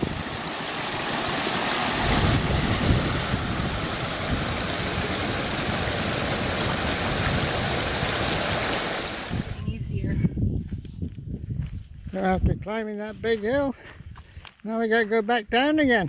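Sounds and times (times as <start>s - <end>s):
creek rushing over rocks: 0.0s - 9.7s.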